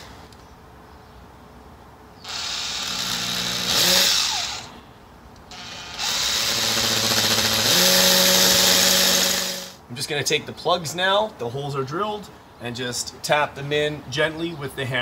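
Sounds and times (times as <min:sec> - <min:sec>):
cordless drill grinding into brick: 0:02.3 - 0:04.7, 0:05.5 - 0:09.8.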